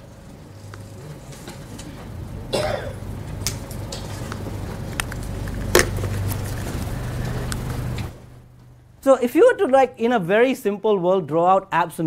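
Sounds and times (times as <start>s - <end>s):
low steady hum: 0.0s - 11.8s
person coughing: 2.5s - 3.0s.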